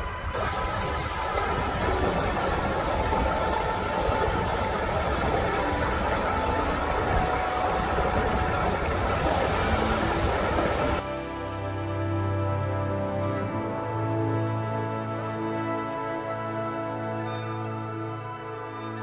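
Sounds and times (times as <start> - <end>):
water rushing over weir: 0.0 - 11.1.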